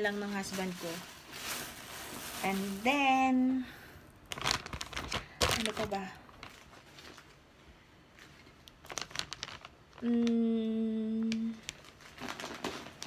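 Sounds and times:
plastic bags crinkling: 0.0s - 10.3s, 11.3s - 13.0s
woman humming hmm: 10.0s - 11.6s.

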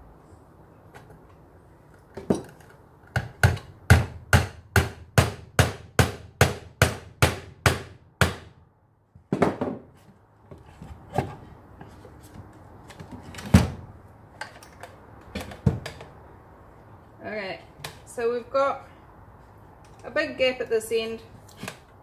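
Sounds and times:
hammer striking a nail into wood: 3.1s - 8.6s.

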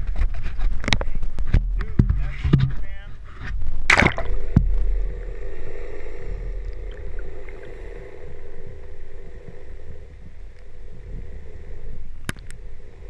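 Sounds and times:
muffled underwater hum: 0.0s - 13.0s
faint ticks: 10.4s - 10.7s, 12.2s - 12.6s.

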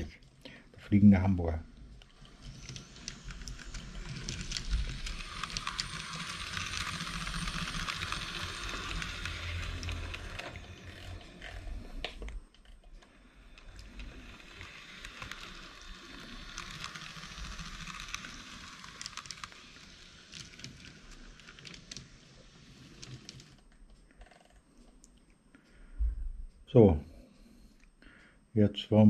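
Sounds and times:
model train running hiss: 2.0s - 12.2s, 13.2s - 23.6s.

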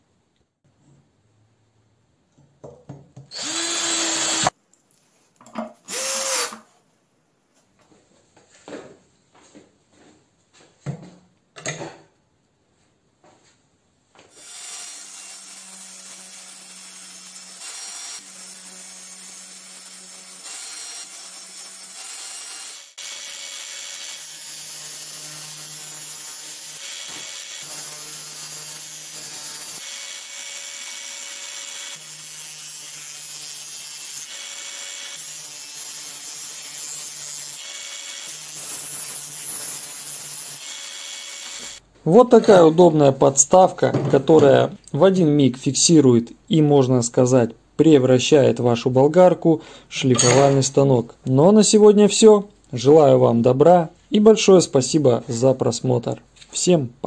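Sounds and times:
angle grinder humming: 3.3s - 4.5s, 5.9s - 6.7s.

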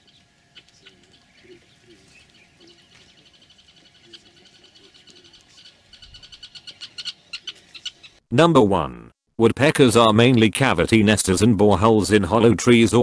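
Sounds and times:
soft low wavering notes: 0.0s - 6.9s
weaver birds chirping: 0.0s - 8.2s.

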